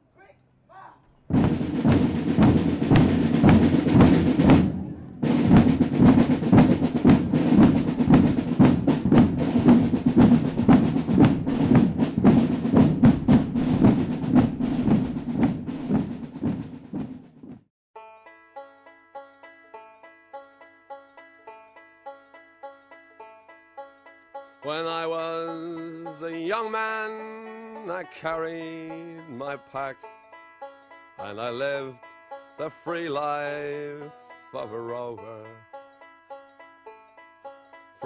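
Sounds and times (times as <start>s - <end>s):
rapid drum rolls: 1.3s - 17.7s.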